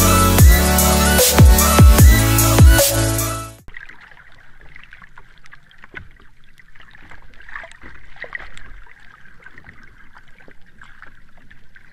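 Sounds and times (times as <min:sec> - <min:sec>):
water sloshing and bubbling: 0:03.6 - 0:11.9.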